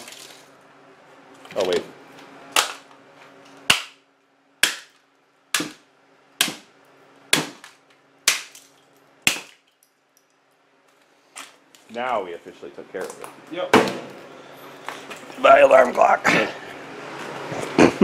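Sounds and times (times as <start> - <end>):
hammer smashing plastic on concrete: 7.3 - 9.8.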